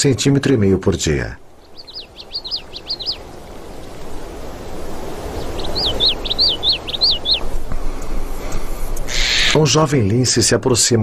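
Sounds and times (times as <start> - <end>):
songbird chirping: 1.3 - 9.6.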